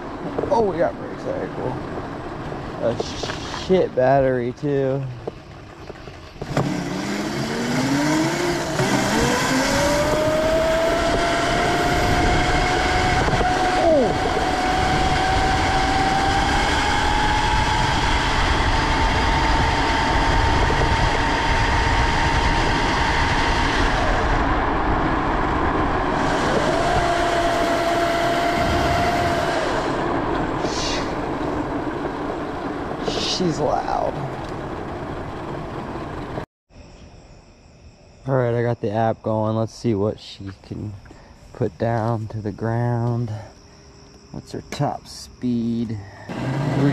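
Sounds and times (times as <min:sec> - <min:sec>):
electric motor whine: 0:06.3 - 0:31.7.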